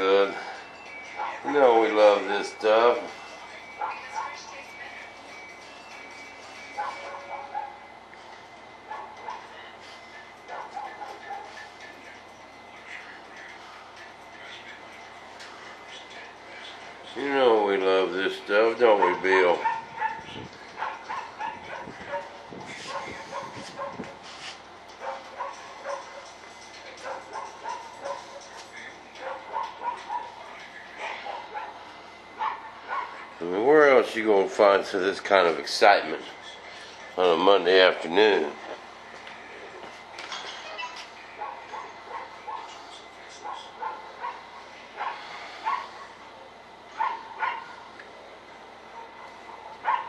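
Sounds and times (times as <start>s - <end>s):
dog yapping: 8.9s - 9.4s, 19.0s - 24.1s, 25.0s - 26.3s, 27.0s - 28.6s, 29.2s - 30.4s, 32.4s - 33.2s, 40.5s - 42.8s, 43.4s - 46.0s, 47.0s - 47.8s, 49.0s - 50.0s
dog whining and yipping: 40.5s - 42.8s.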